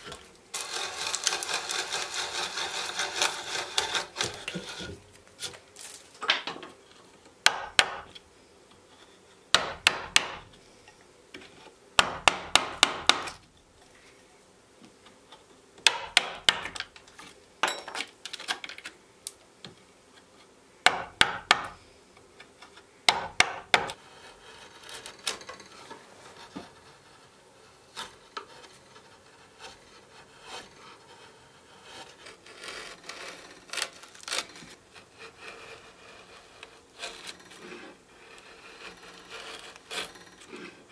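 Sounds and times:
chisel scraping through wood: 0.0s - 5.6s, 8.9s - 10.6s, 15.9s - 17.4s, 23.1s - 40.9s
chisel strikes into wood: 7.4s - 8.1s, 9.6s - 10.5s, 12.0s - 13.4s, 15.8s - 16.8s, 20.9s - 21.8s, 23.1s - 23.9s.

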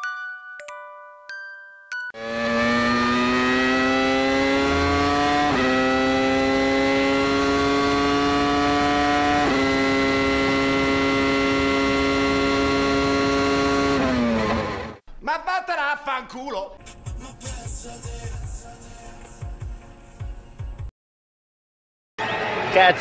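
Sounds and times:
engine accelerating and shifting gears: 2.2s - 15.0s.

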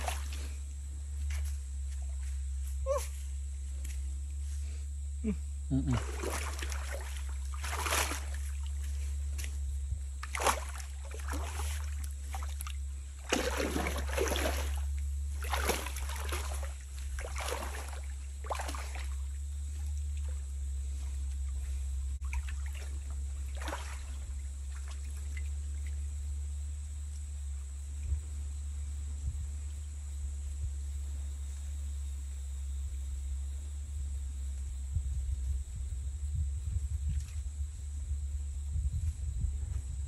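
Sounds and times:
water splashing in a stream: 0.0s - 0.5s, 5.9s - 9.5s, 10.2s - 20.4s, 22.2s - 26.1s.

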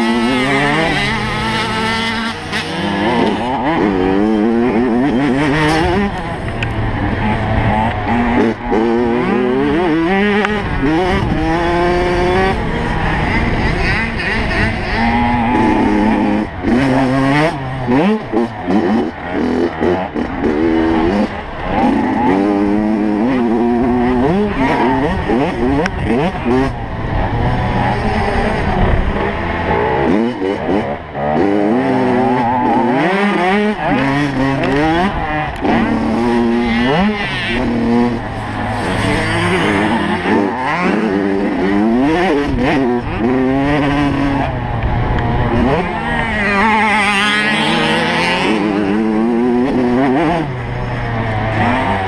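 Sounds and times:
two-stroke motorbike engine revving: 0.0s - 52.0s.

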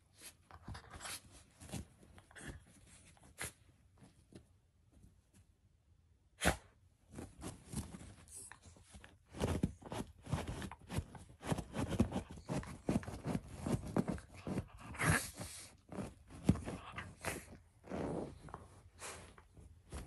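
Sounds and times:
dog pawing at pillow: 7.1s - 20.0s.

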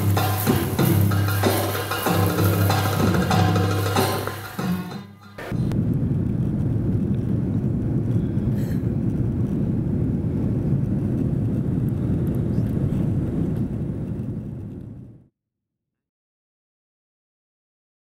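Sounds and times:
jet airliner cabin rumble: 5.4s - 15.3s.

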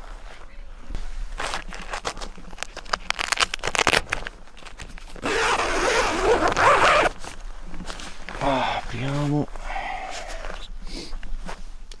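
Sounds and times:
tent zipper rasping: 5.2s - 7.4s.

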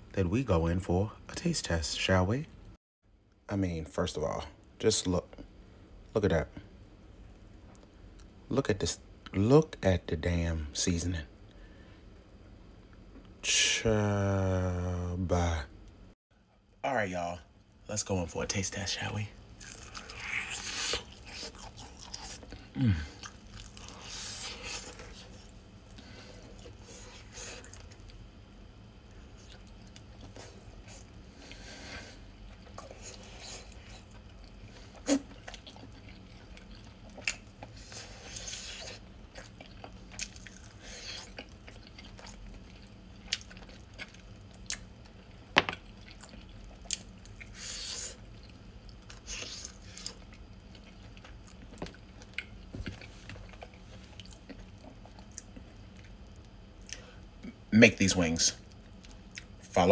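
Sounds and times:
person biting and chewing: 19.6s - 25.5s.

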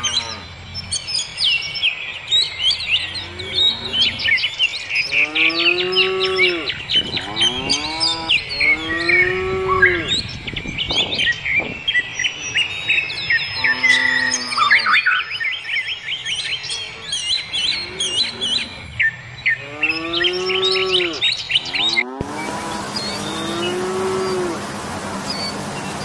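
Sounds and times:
cow mooing: 0.0s - 0.7s, 3.1s - 4.4s, 5.1s - 10.2s, 13.6s - 15.0s, 17.7s - 18.7s, 19.6s - 24.6s
songbirds chirping: 0.0s - 26.0s.

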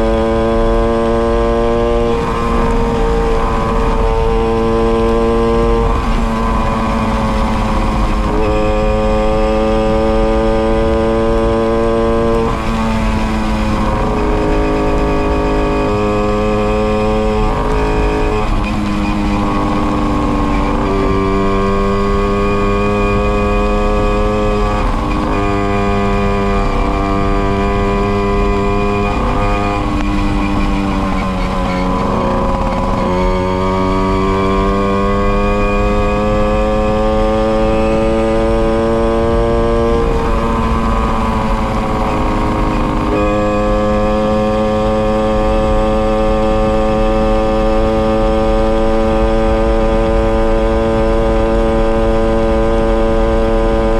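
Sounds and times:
moped engine buzzing: 0.0s - 53.9s.

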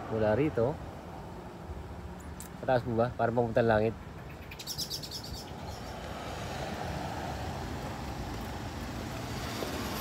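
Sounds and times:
road traffic rushing: 0.0s - 10.0s
bird chirping: 3.8s - 6.0s.

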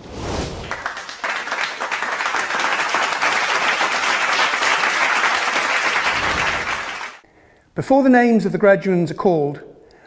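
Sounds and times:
crowd applauding: 0.6s - 7.2s.

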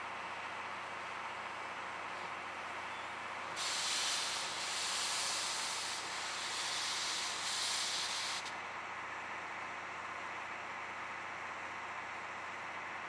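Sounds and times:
steam locomotive venting steam: 3.5s - 8.6s.

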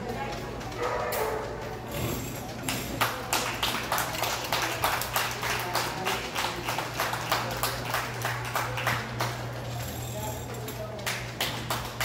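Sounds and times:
hands clapping in rhythm: 2.6s - 9.5s, 11.0s - 12.0s.

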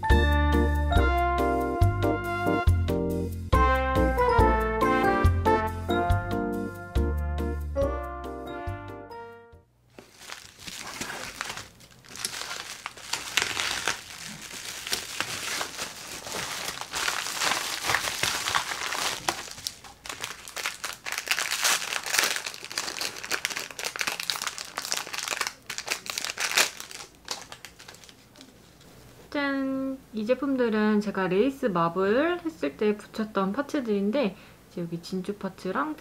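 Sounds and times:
plastic packaging crinkling: 9.9s - 28.6s.

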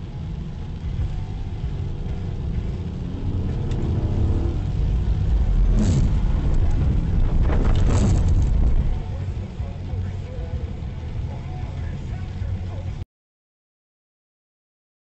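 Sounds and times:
car engine and tyres on wet road: 0.0s - 13.0s
windshield wiper swishing: 1.7s - 9.0s.

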